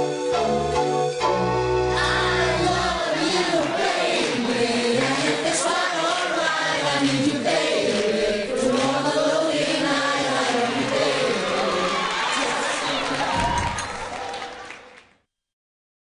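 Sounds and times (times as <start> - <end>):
group singing in unison: 1.9 - 13.3.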